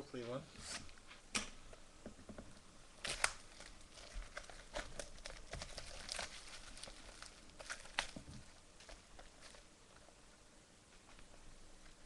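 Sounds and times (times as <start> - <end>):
wrapper tearing and crumpling: 3.0 - 9.6.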